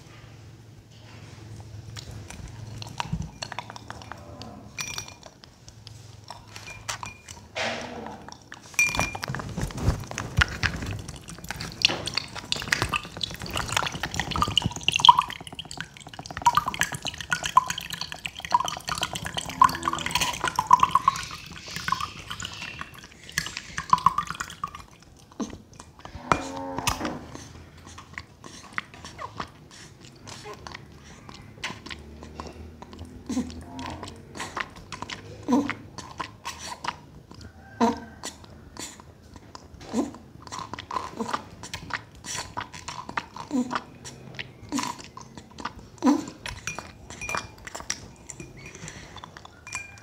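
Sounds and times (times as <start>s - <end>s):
clicks and rustles: 1.9s - 14.9s
milk pouring into a glass: 8.4s - 29.0s, 44.5s - 50.0s.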